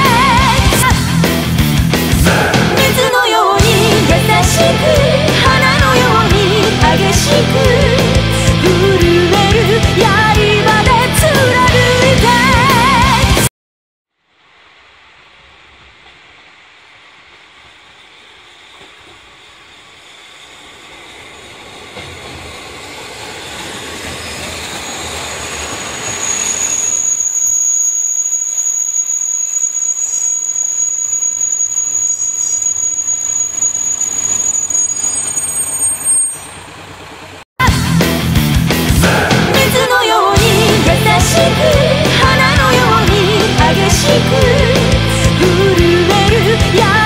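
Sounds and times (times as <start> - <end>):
diesel train rumbling past: 0.0 - 13.5, 14.4 - 47.0
metallic squeal from train wheels: 17.9 - 37.2.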